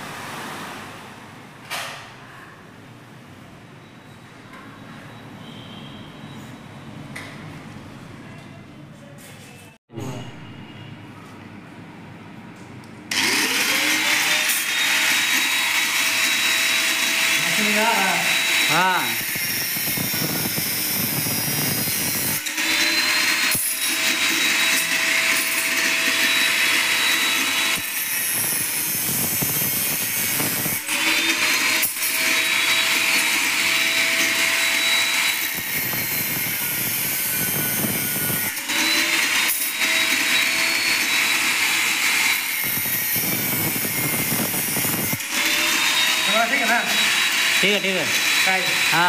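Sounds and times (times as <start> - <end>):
angle grinder cutting metal: 13.1 - 49.0.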